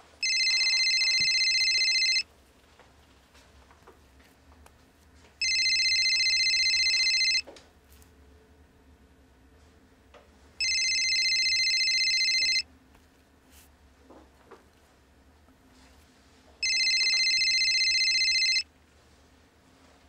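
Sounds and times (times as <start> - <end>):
telephone ringing: 0.2 - 2.3, 5.4 - 7.4, 10.6 - 12.6, 16.6 - 18.7.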